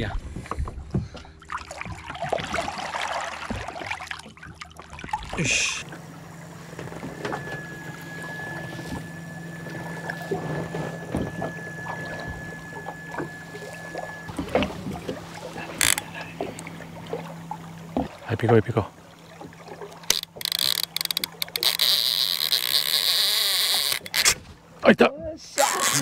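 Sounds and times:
water splashing and sloshing: 0:00.0 - 0:24.8
low steady hum: 0:00.0 - 0:26.0
thin high tone: 0:05.5 - 0:14.4.

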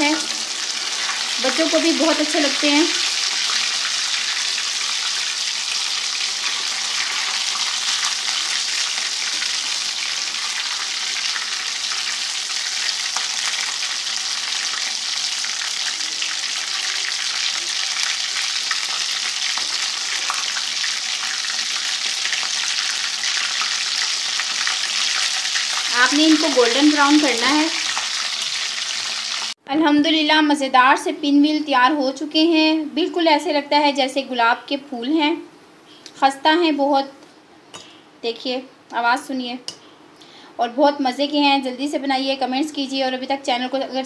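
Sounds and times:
food sizzling in hot oil: 0:00.0 - 0:29.6.

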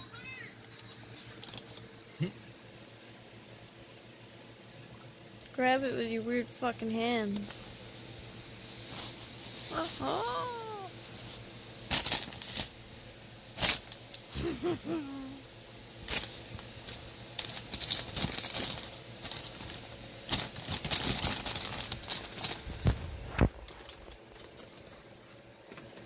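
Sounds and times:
paper bag crinkling: 0:08.8 - 0:12.8, 0:13.6 - 0:14.1, 0:16.0 - 0:25.8
sharp paper crackles: 0:11.1 - 0:12.8, 0:13.6 - 0:14.2, 0:16.0 - 0:26.0.

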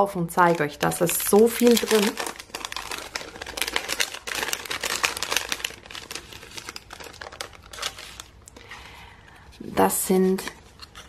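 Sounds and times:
plastic packet crinkling: 0:00.3 - 0:08.6.

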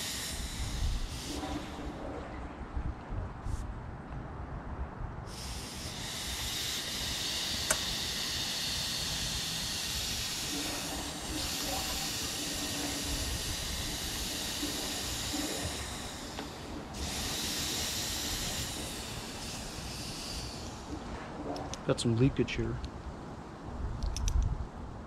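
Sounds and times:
compressed air hissing: 0:00.0 - 0:02.4, 0:05.2 - 0:21.8.

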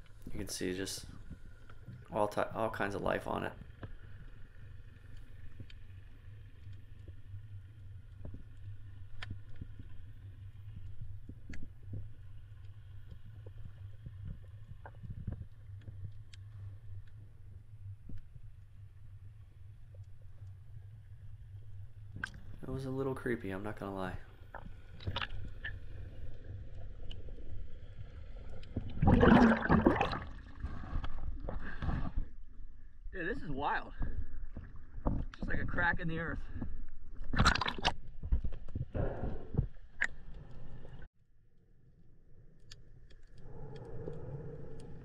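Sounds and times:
underwater low rumble: 0:00.0 - 0:45.0
faint clicks: 0:03.6 - 0:18.8, 0:42.6 - 0:45.0
sharp underwater clicks: 0:08.2 - 0:10.0, 0:22.1 - 0:22.6, 0:24.5 - 0:26.1, 0:37.2 - 0:41.0, 0:42.6 - 0:45.0
loud bubbling gush: 0:29.0 - 0:30.6.

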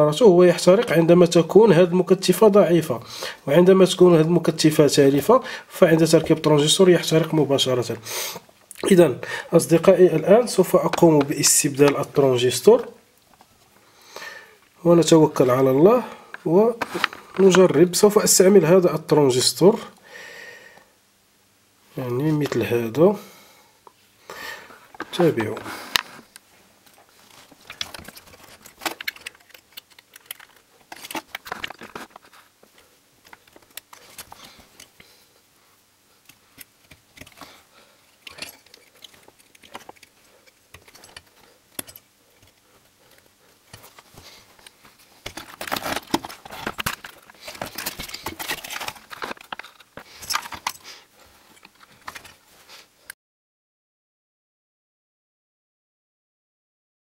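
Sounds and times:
small electronic parts clicking: 0:27.6 - 0:32.3, 0:38.1 - 0:44.0.

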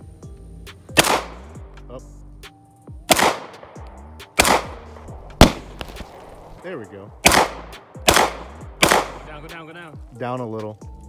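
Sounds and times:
handgun shots with echo: 0:01.0 - 0:01.4, 0:03.1 - 0:06.2, 0:07.2 - 0:09.3.

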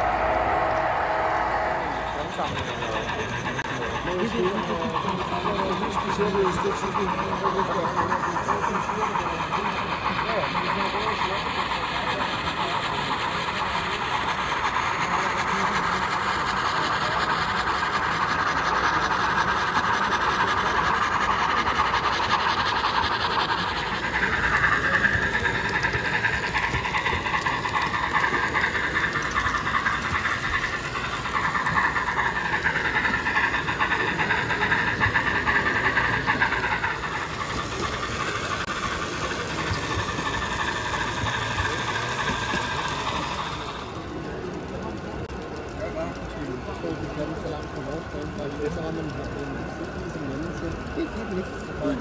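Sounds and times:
wavering higher tone: 0:00.0 - 0:03.6
model steam locomotive hiss: 0:00.0 - 0:52.0.

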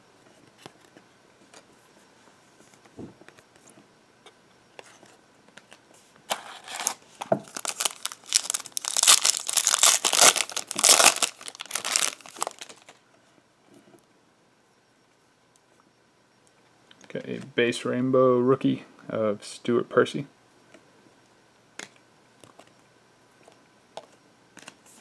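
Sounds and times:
foil wrapper tearing and crinkling: 0:06.3 - 0:13.0.

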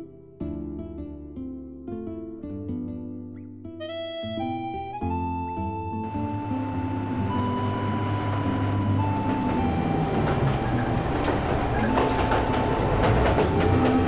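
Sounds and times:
diesel railcar engine hum: 0:05.1 - 0:14.0
wheel and rail noise: 0:06.0 - 0:14.0
sharp clicks from wheels: 0:06.5 - 0:14.0.

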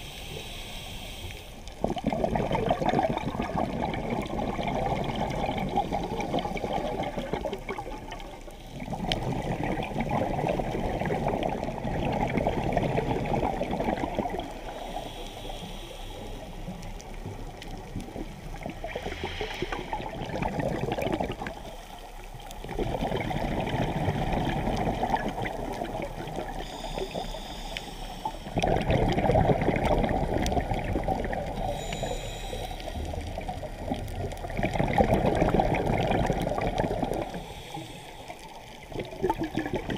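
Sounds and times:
underwater scuba exhalation bubbles: 0:01.8 - 0:14.7, 0:17.6 - 0:21.8, 0:22.6 - 0:27.2, 0:28.5 - 0:32.1, 0:33.0 - 0:37.5, 0:38.8 - 0:39.9.

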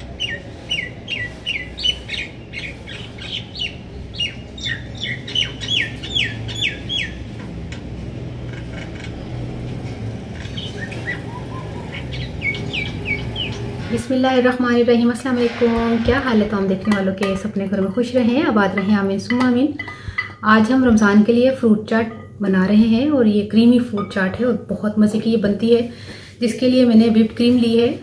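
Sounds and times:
small birds chirping: 0:00.0 - 0:07.3, 0:10.3 - 0:14.0.

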